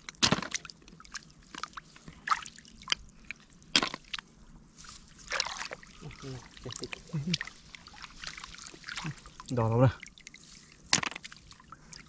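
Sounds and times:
hands splashing in muddy water: 4.9 - 9.6
water dripping: 5.3 - 10.4.

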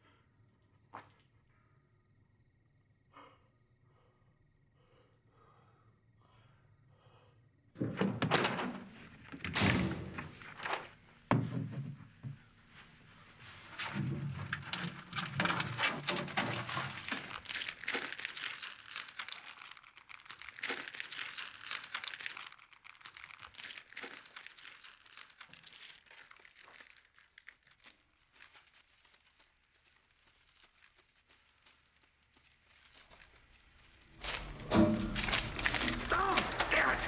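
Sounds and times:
packaging crinkling and rustling: 13.9 - 37.0.

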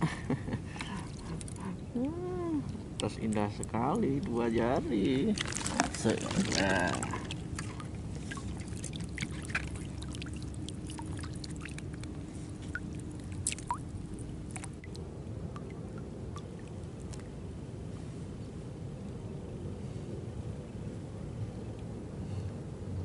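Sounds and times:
steady low hum: 0.0 - 23.0
water dripping and trickling: 0.8 - 17.3.

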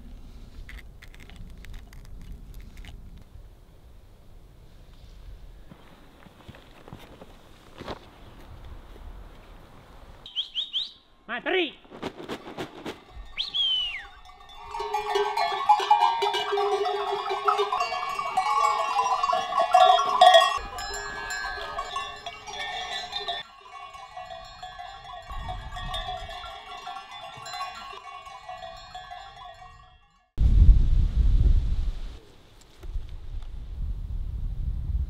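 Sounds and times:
goat bells clanking: 13.0 - 30.4.

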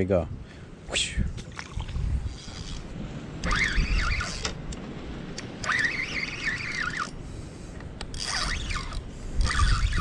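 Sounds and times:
wind rumble on microphone: 0.0 - 10.0
fishing reel whining: 2.3 - 4.6, 5.6 - 7.2, 8.1 - 10.0.

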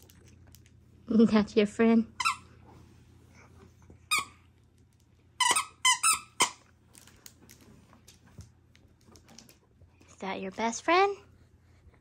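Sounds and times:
squeaky toy squeaks: 2.2 - 2.4, 5.4 - 6.6.

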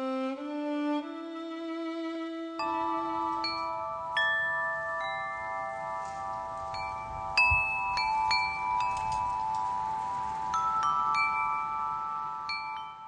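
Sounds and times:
bell-like chimes ringing: 2.6 - 13.0.

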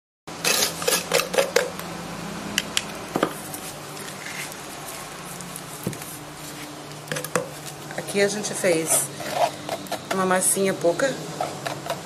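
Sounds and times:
wet mortar squishing: 3.4 - 6.8.

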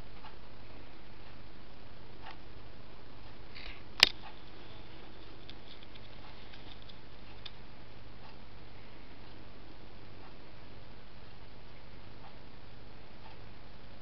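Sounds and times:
steady low hum: 0.0 - 14.0
sharp click: 4.0 - 4.3.

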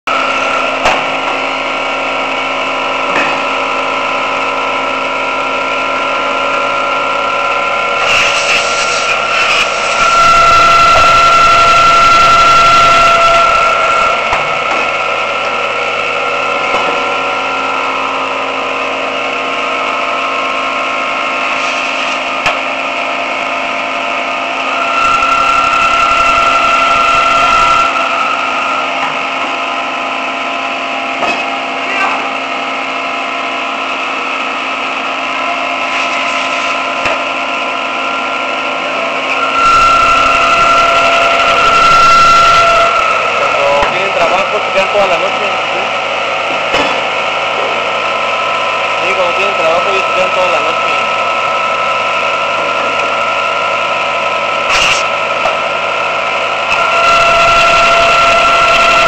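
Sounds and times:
machine tool cutting metal: 7.8 - 15.6, 24.6 - 29.7, 35.3 - 59.0.

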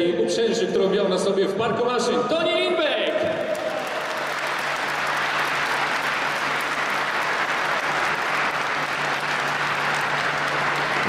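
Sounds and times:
crowd applauding: 3.3 - 11.0.

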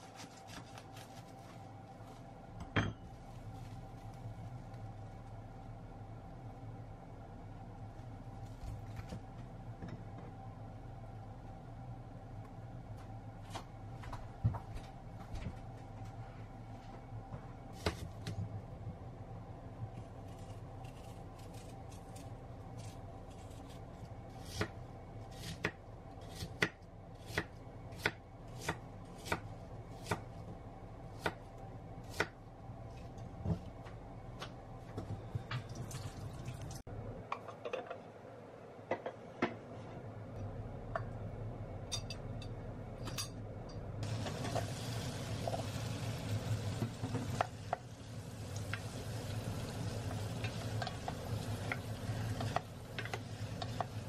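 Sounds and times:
apple pieces sizzling in pan: 44.0 - 54.0.

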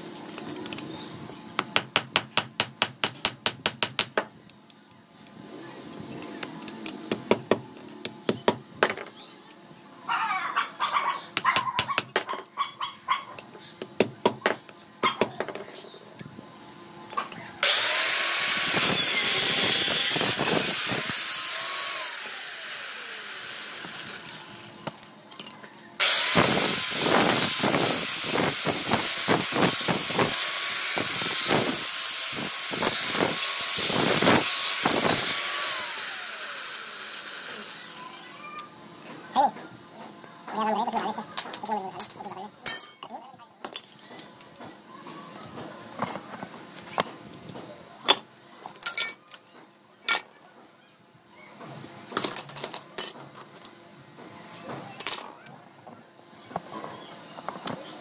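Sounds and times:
angle grinder grinding steel: 17.6 - 24.8, 26.0 - 38.3.

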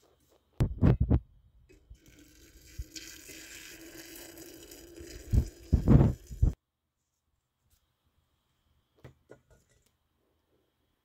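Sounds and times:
microphone handling thumps: 0.6 - 1.3
water pouring into a pot: 1.7 - 6.6.

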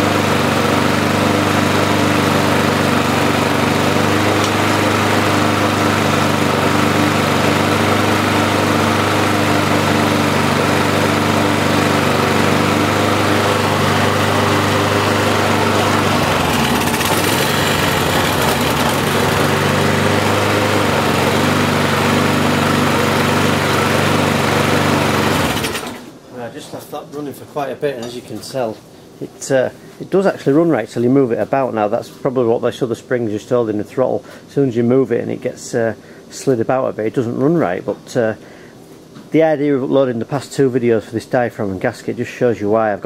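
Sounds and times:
lawnmower engine running: 0.0 - 26.1.

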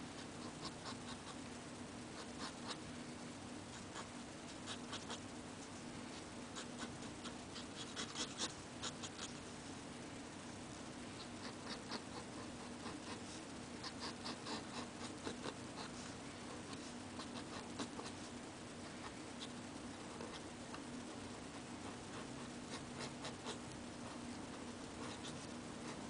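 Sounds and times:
steady low hum: 0.0 - 26.0
pen nib scratching paper: 0.2 - 1.4, 2.2 - 2.8, 3.7 - 5.2, 6.6 - 9.4, 11.2 - 16.0, 16.6 - 18.3, 21.5 - 26.0.

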